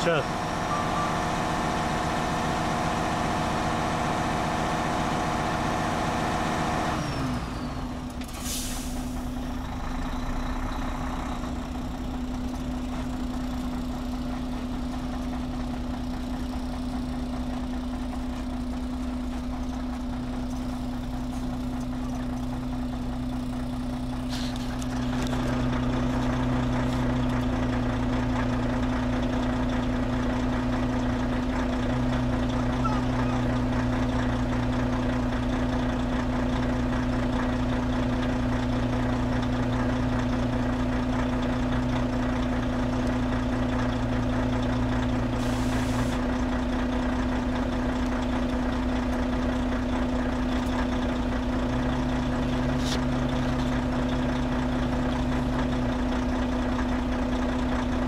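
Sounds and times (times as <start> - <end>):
diesel truck engine: 0.0 - 58.0
air brake hiss: 8.3 - 9.2, 45.4 - 46.2.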